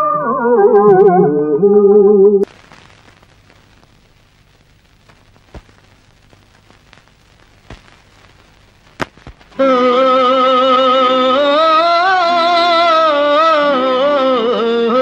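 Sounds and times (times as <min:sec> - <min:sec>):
clicks and crackles: 0:02.4 - 0:09.6
faint hiss: 0:02.4 - 0:15.0
film song held sung note: 0:09.5 - 0:15.0.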